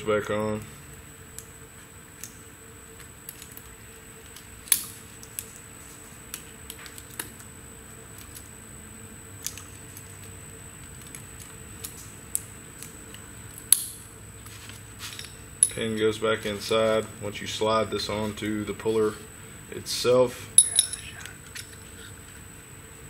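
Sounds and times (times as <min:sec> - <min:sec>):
metal parts clicking and tapping: 0:20.6 - 0:21.8.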